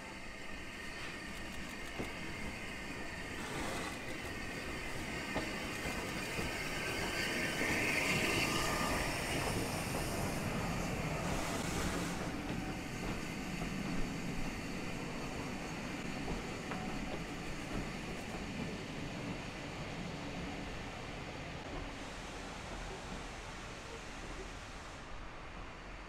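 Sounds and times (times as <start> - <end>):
steam hiss: 0.0 - 26.0
steam locomotive passing: 0.0 - 26.0.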